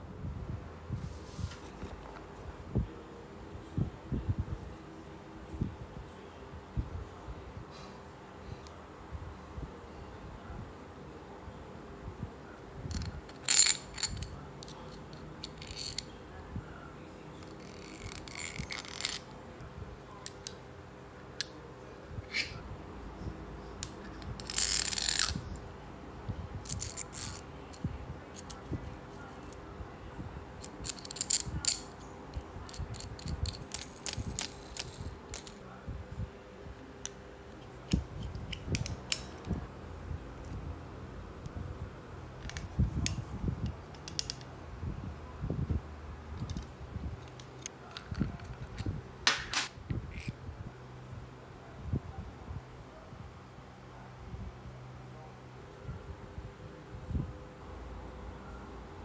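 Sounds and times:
metal parts clicking and clinking: 0:12.9 - 0:16.2, 0:17.4 - 0:19.3, 0:20.2 - 0:20.6, 0:23.8 - 0:25.6, 0:26.6 - 0:28.8, 0:30.6 - 0:35.6, 0:37.9 - 0:39.6, 0:43.9 - 0:44.5, 0:46.4 - 0:50.4.

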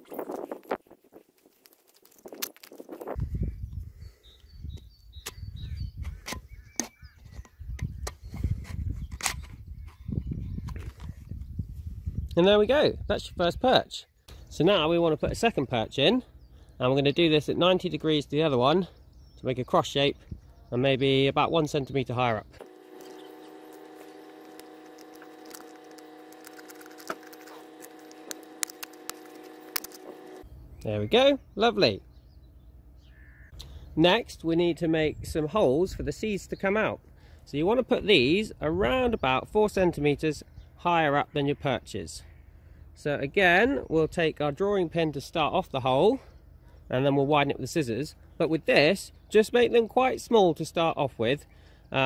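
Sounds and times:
plastic bottle crackling: 0:01.4 - 0:03.1, 0:23.0 - 0:30.4
sharp clicks: 0:22.6 - 0:30.4.

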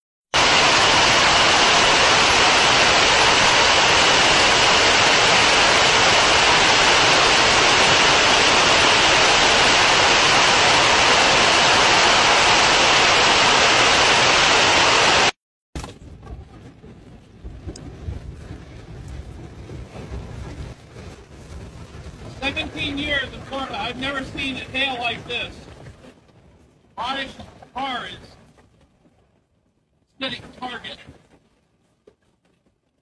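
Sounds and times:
heavy hail and rain: 0:00.4 - 0:15.4.

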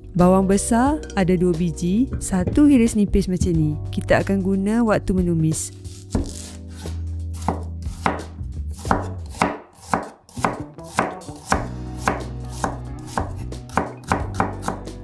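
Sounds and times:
knife slicing onion on board: 0:05.8 - 0:15.0.

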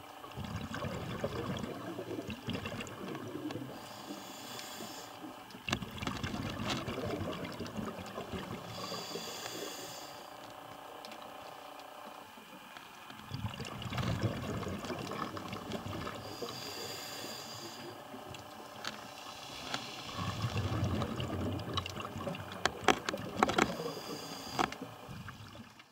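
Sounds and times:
bubbling exhalation underwater: 0:00.4 - 0:03.8, 0:05.6 - 0:09.1, 0:13.2 - 0:16.4, 0:20.1 - 0:24.0
regulator inhalation hiss: 0:03.7 - 0:05.3, 0:08.6 - 0:10.4, 0:16.2 - 0:18.0, 0:19.0 - 0:20.5, 0:23.7 - 0:24.8.

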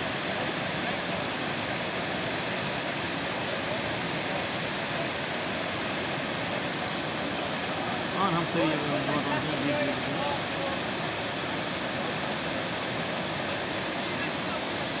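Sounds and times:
water gushing over rocks: 0:00.0 - 0:15.0.

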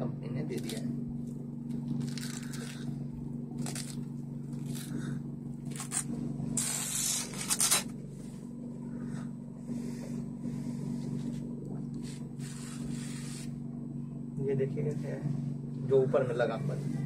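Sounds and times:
steady low hum: 0:00.0 - 0:17.0
packaging rustling and ripping: 0:01.7 - 0:02.9, 0:03.6 - 0:05.0, 0:05.6 - 0:08.0.

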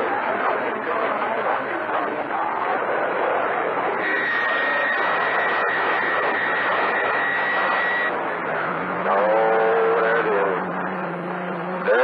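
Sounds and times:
radio static hiss: 0:03.3 - 0:12.0
voice through radio noise: 0:03.9 - 0:12.0
high whistle: 0:04.0 - 0:08.1.

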